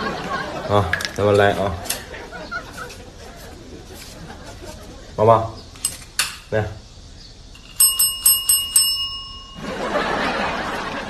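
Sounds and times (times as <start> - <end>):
tap bell dinging: 7.6 - 10.0.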